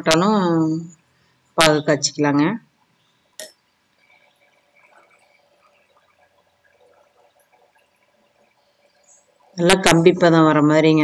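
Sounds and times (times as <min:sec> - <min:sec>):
syrup bubbling in a pan: 0:02.8 - 0:09.9.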